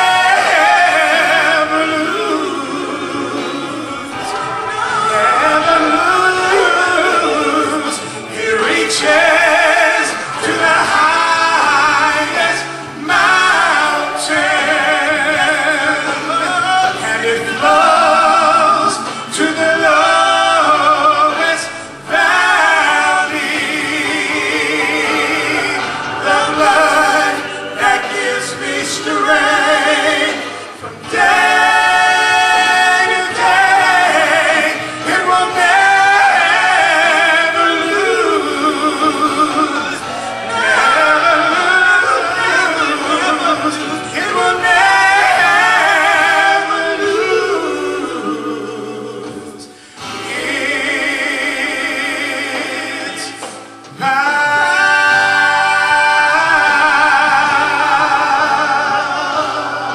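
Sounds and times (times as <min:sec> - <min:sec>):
man and woman singing gospel: 0:00.0 - 0:59.9
recorded backing track: 0:00.0 - 0:59.9
singers breathing: 0:49.7 - 0:50.2.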